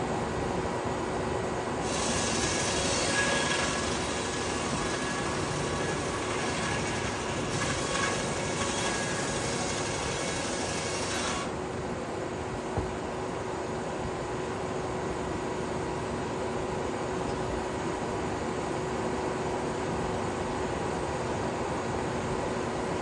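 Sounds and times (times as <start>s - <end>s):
sawmill machinery running: 1.7s - 12.1s
saw blade cutting log: 1.8s - 11.6s.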